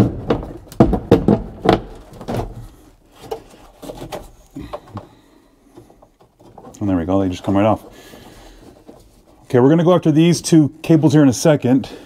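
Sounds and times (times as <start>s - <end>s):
duct knocking and scraping: 0.0s - 9.5s.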